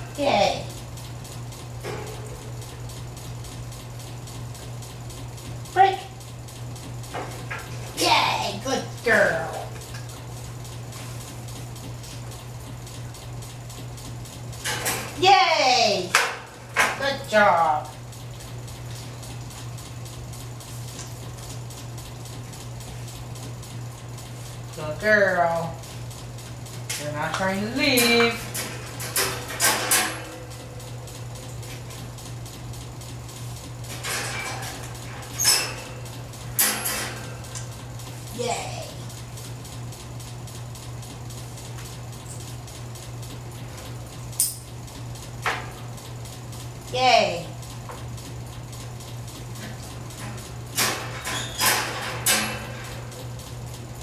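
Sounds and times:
steady low hum: 0.0s - 54.0s
puppy rattling wire crate: 33.9s - 37.8s, 50.7s - 53.3s.

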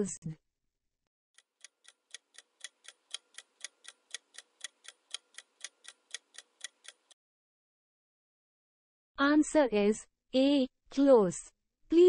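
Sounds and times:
clock ticking: 1.4s - 7.2s.

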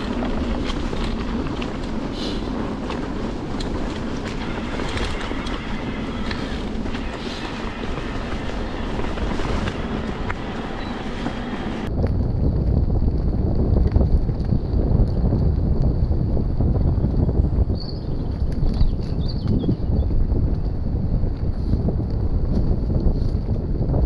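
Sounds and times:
bike chain and frame rattling: 0.0s - 11.6s
bike tyres on leaves and dirt: 0.0s - 24.0s
wind rumble on microphone: 0.0s - 24.0s.

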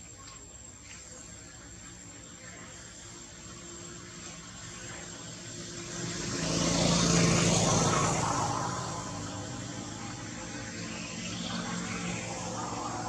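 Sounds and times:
engine passing by: 2.7s - 13.0s.

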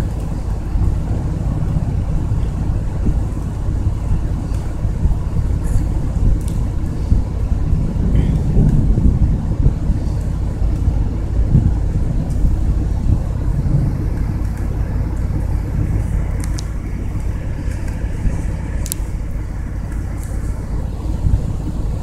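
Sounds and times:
thunderstorm rumble: 0.0s - 22.0s
faint clicks: 14.1s - 18.1s, 18.8s - 19.1s.

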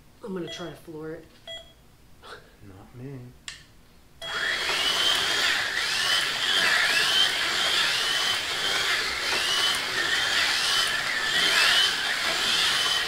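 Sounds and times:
slot car motors whining: 4.2s - 13.0s.

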